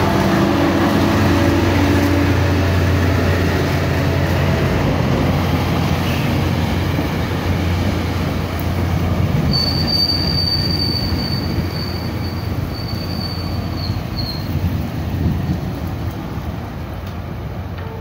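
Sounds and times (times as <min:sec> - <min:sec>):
train rumbling past: 0:00.0 - 0:18.0
high wheel squeal: 0:09.5 - 0:14.6.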